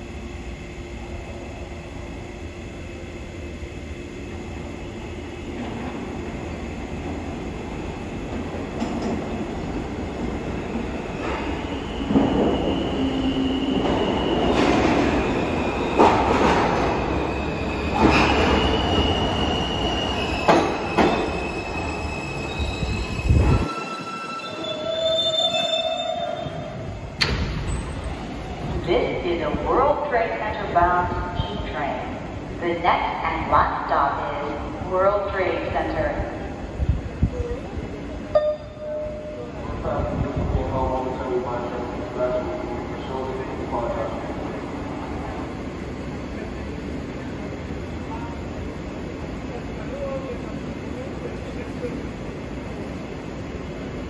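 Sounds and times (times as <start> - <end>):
subway train rumbling: 0.0 - 54.0
train wheels squealing: 17.2 - 26.8.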